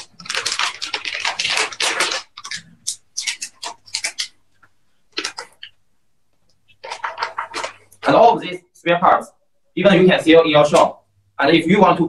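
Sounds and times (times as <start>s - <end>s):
plastic bags crinkling: 0.0s - 5.8s, 6.7s - 8.4s.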